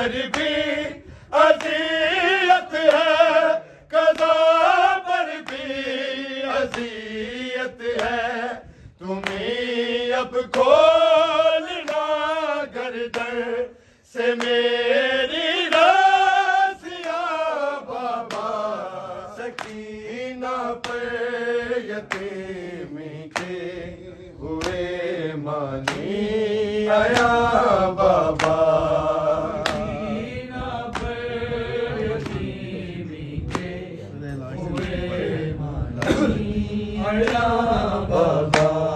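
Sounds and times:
man chanting a lament: 0:00.0 - 0:38.9
other voices chanting: 0:00.0 - 0:38.9
chest-beating slaps: 0:19.4 - 0:19.9, 0:22.0 - 0:22.4, 0:23.3 - 0:23.7, 0:25.8 - 0:26.2, 0:27.0 - 0:31.3, 0:33.4 - 0:35.0, 0:35.9 - 0:36.5, 0:38.5 - 0:38.9.

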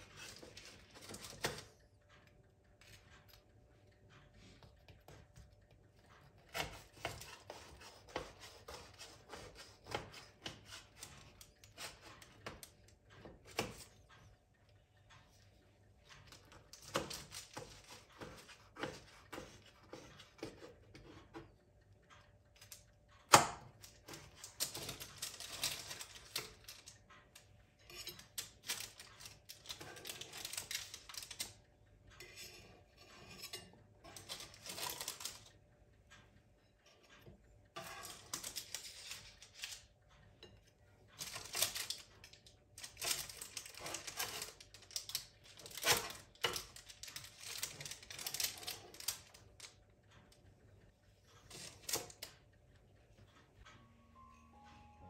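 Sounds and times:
utensils clicking against dishes: 0:22.6 - 0:31.6, 0:32.2 - 0:35.6, 0:36.9 - 0:49.8.

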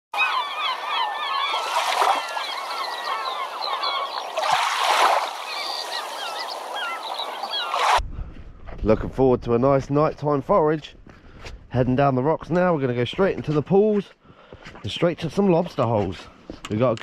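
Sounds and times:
flock of birds calling: 0:00.2 - 0:08.0.

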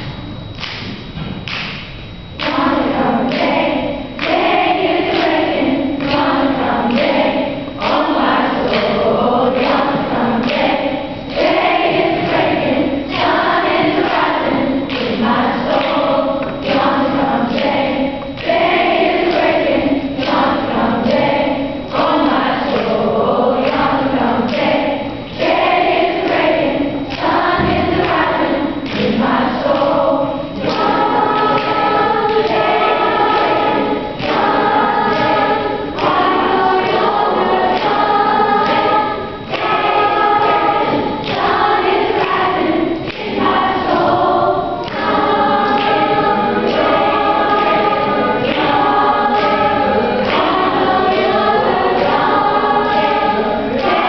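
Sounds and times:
steady thumping beat: 0:00.0 - 0:54.0
choir of female voices singing: 0:02.2 - 0:54.0.

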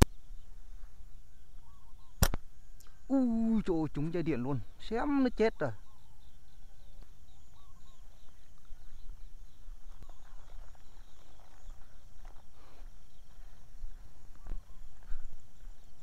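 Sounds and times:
wind rumble on microphone: 0:05.8 - 0:16.0
rustling footsteps: 0:06.8 - 0:16.0.

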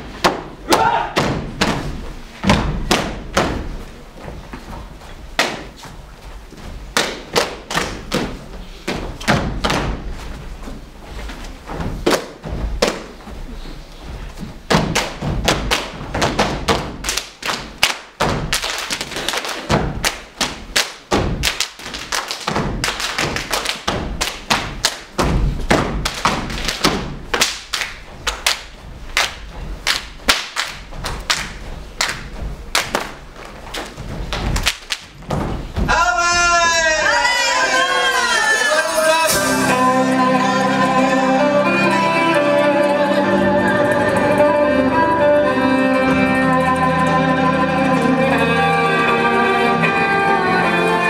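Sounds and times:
boots stamping on wooden stage: 0:00.1 - 0:11.0, 0:14.1 - 0:27.4, 0:28.0 - 0:36.1.

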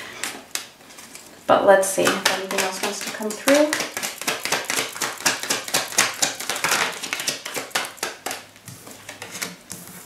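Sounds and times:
cards tapped on table: 0:02.0 - 0:08.4
cards being shuffled: 0:02.0 - 0:10.0.

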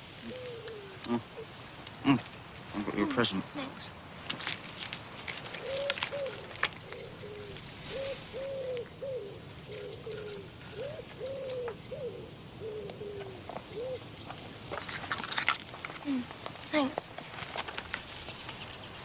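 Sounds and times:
dove cooing: 0:00.0 - 0:03.1, 0:05.2 - 0:14.2
small birds chirping: 0:00.0 - 0:19.0.

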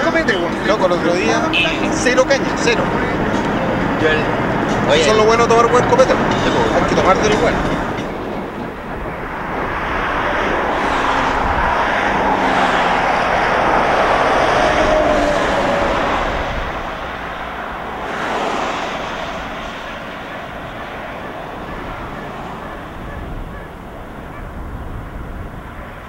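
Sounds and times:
vehicles passing on highway: 0:00.0 - 0:26.0.

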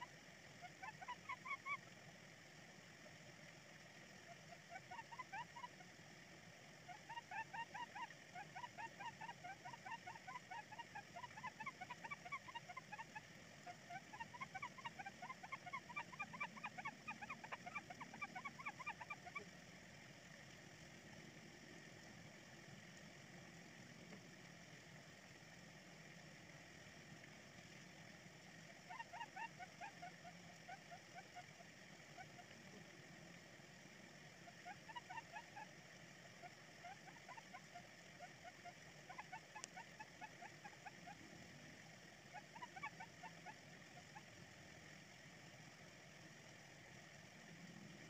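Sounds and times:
faint steady hiss: 0:00.0 - 0:48.0
small animal chirping rapidly: 0:00.6 - 0:01.8, 0:04.5 - 0:05.8, 0:06.9 - 0:19.4, 0:28.9 - 0:31.5, 0:34.5 - 0:35.7, 0:36.8 - 0:41.0, 0:42.3 - 0:43.6.

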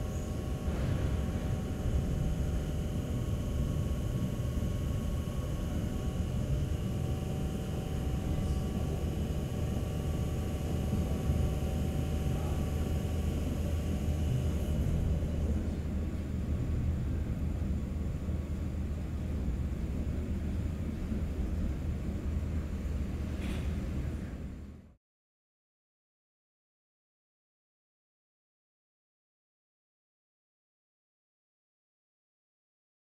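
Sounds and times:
train rumbling on track: 0:00.0 - 0:09.2.

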